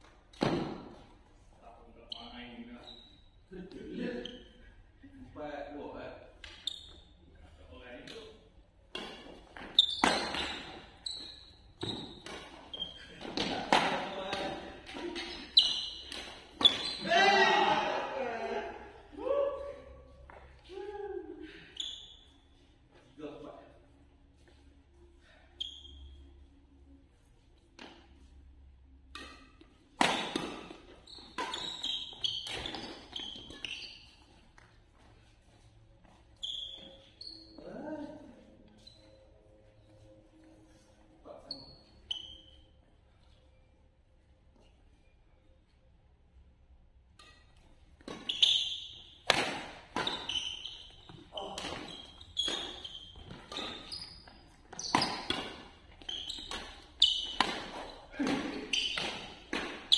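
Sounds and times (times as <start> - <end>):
racket hitting shuttlecock: 0.3 - 1.0, 8.9 - 17.9, 29.1 - 33.9, 47.2 - 59.9
shoes squeaking on floor: 1.9 - 4.8, 6.4 - 18.1, 21.5 - 28.4, 29.2 - 43.8, 47.2 - 59.9.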